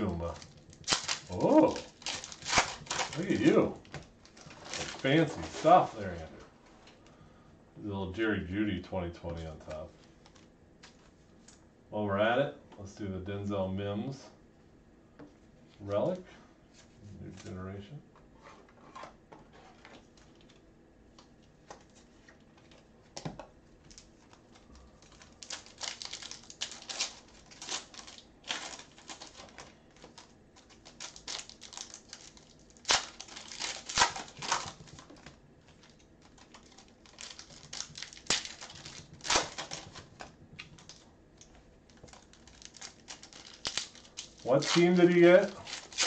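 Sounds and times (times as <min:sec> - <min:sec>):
foil wrappers tearing and crinkling: 0:00.0 - 0:06.2, 0:23.9 - 0:41.1, 0:41.9 - 0:46.0.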